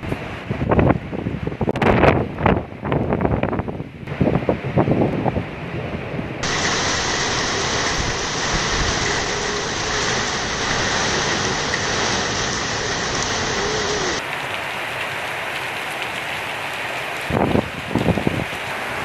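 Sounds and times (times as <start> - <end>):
heavy rain on concrete: 6.4 - 19.0.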